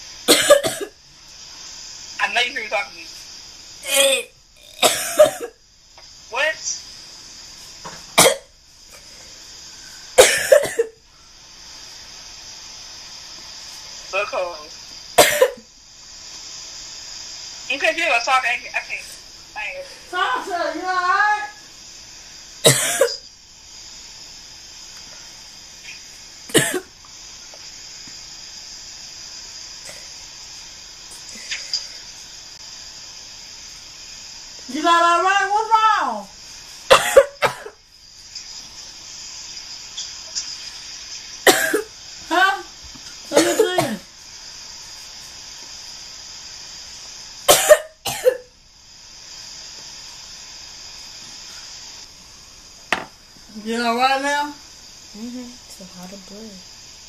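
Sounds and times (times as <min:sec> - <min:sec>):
faint hiss: 0:00.0 - 0:57.0
person coughing: 0:00.3 - 0:00.9, 0:03.8 - 0:05.5, 0:08.2 - 0:08.5, 0:10.2 - 0:10.9, 0:15.2 - 0:15.6, 0:22.7 - 0:23.2, 0:26.5 - 0:26.9, 0:36.9 - 0:37.8, 0:41.5 - 0:41.9, 0:43.4 - 0:44.0, 0:47.5 - 0:48.4.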